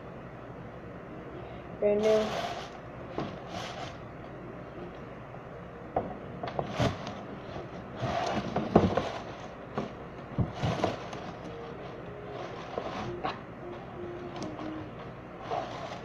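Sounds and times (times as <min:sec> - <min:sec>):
scrapes and rustles: 0:02.0 - 0:04.0, 0:06.5 - 0:13.3, 0:15.4 - 0:16.0.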